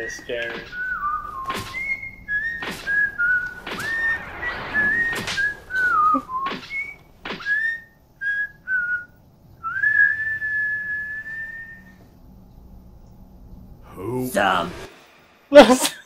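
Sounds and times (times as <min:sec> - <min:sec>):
person whistling a tune: 0:00.6 - 0:12.0.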